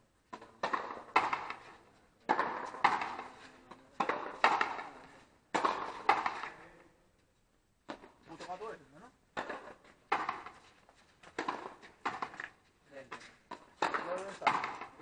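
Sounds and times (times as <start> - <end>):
racket striking ball: 0.3 - 6.6, 9.4 - 15.0.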